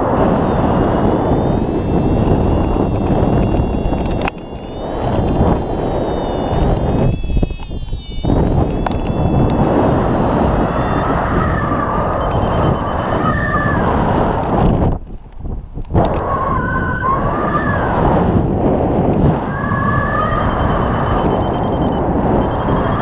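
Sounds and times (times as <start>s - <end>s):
wind buffeting microphone: 0.0s - 23.0s
variometer beeping: 0.1s - 11.1s, 12.2s - 13.4s, 20.1s - 23.0s.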